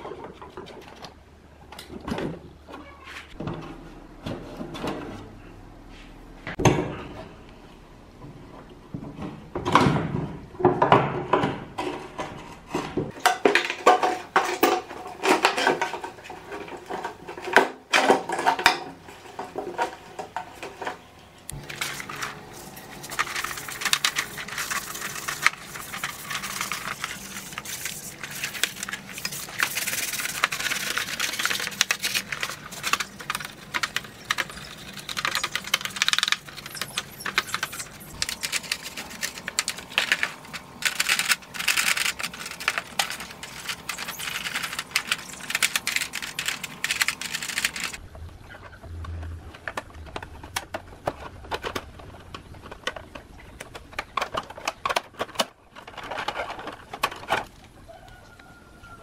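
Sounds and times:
scrubbing plastic in soapy water: 0:21.8 - 0:48.0
sharp plastic knocks and clatter: 0:48.7 - 0:57.6.

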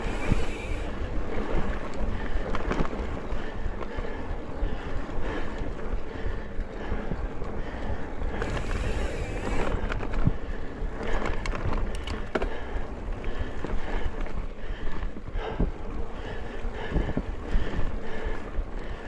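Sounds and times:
bike rattling: 0:00.0 - 0:19.0
tyres rolling on dirt trail: 0:00.0 - 0:19.0
wind rushing on microphone: 0:00.0 - 0:19.0.

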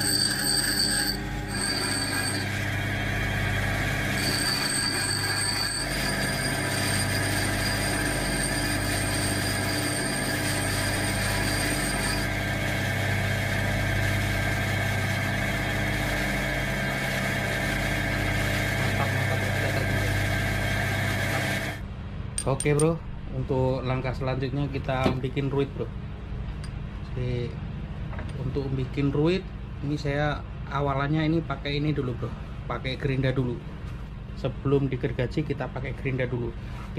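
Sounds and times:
bench grinder motor hum: 0:00.0 - 0:21.8
high grinding whine: 0:00.0 - 0:21.8.

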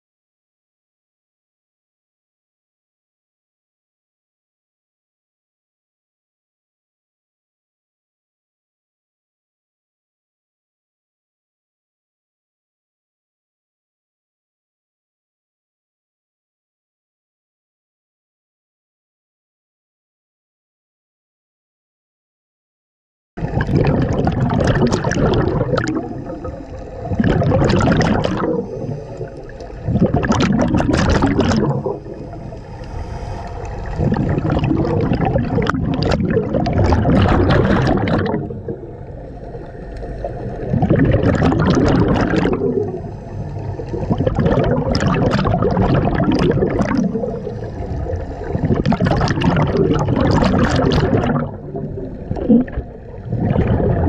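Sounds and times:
bubbles gurgling underwater: 0:23.4 - 0:32.9, 0:33.6 - 0:54.0
diver inhaling through regulator: 0:25.8 - 0:30.3, 0:31.2 - 0:35.6, 0:42.4 - 0:44.3, 0:47.0 - 0:48.9.

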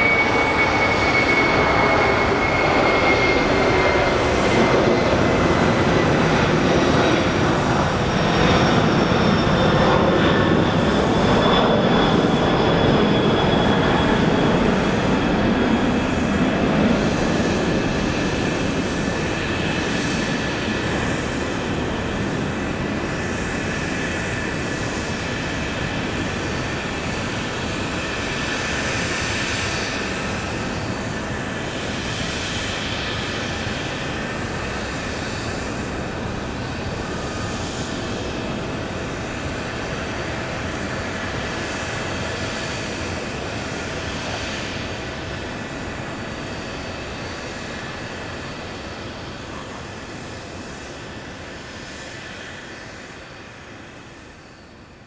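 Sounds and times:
faint high engine whine: 0:00.0 - 0:55.0
jet engines rushing: 0:00.0 - 0:55.0.

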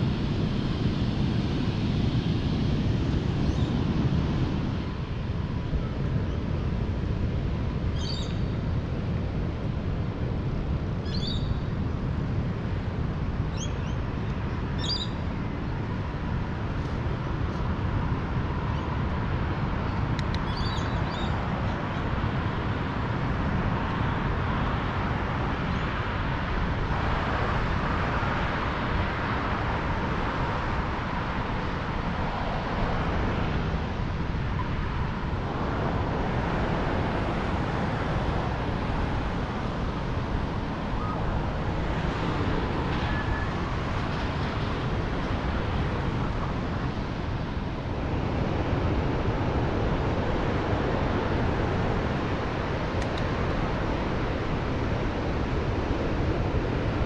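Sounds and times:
wind rumble on microphone: 0:00.0 - 0:57.0
bird chirps: 0:20.5 - 0:21.3.

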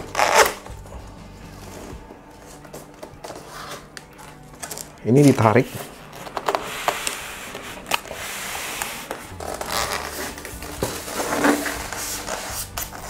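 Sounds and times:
cardboard and styrofoam scraping: 0:05.2 - 0:13.0.

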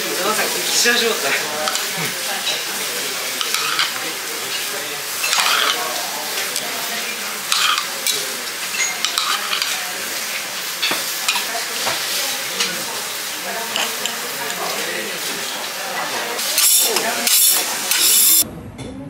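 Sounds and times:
hot plate sizzling: 0:00.0 - 0:18.4
metal spoon clinking: 0:07.5 - 0:09.8.

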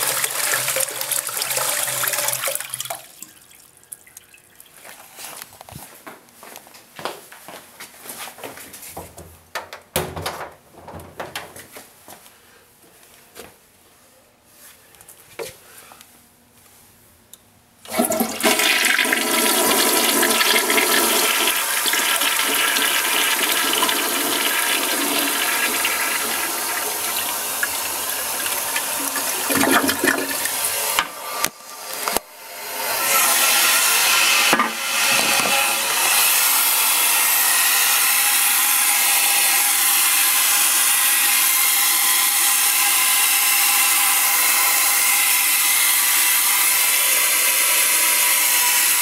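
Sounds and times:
toilet flushing: 0:00.0 - 0:03.7, 0:17.9 - 0:49.0.

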